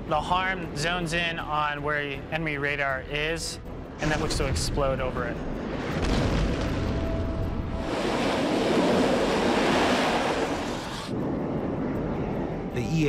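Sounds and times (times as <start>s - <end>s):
jet engine roar: 7.7s - 12.5s.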